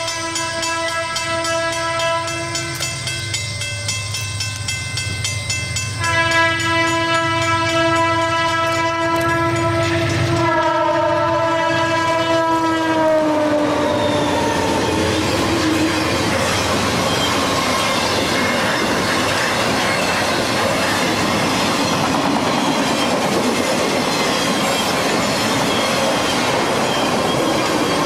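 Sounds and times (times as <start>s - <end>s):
locomotive air horn blasts: 0.0s - 2.7s, 6.0s - 14.4s
train cars rolling clatter: 14.0s - 28.0s.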